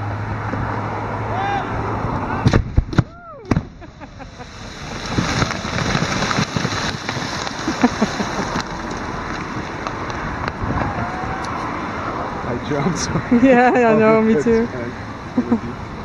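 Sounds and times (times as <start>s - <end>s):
ice and water spray raining down: 3.8s - 11.8s
ice chunks falling: 4.5s - 10.2s.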